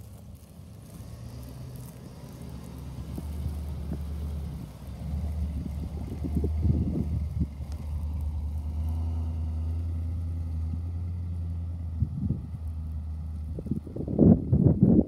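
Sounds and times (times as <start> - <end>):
pickup truck engine running: 0.0 - 15.0
wheels spinning in dirt: 0.0 - 15.0
wind gusts on microphone: 5.4 - 7.7, 11.9 - 15.0.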